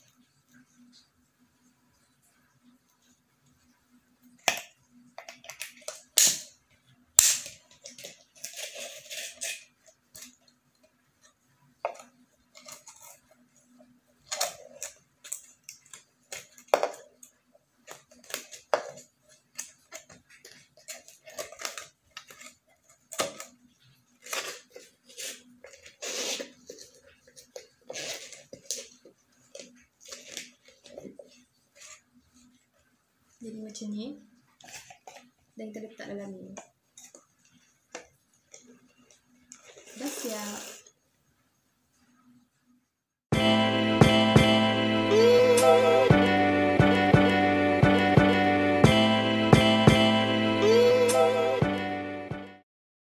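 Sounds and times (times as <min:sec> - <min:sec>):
plastic bottle crackling: 0:11.2 - 0:32.0.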